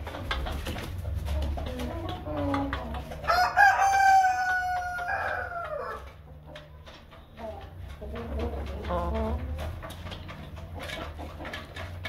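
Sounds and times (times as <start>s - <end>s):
hens clucking softly: 0.0s - 12.0s
rooster crowing: 3.3s - 6.1s.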